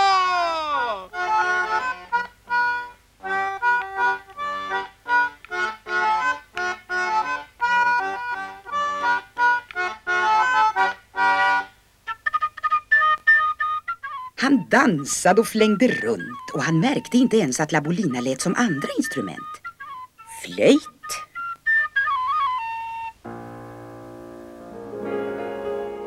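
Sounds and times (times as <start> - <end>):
accordion playing dance tune: 0.9 - 21.3.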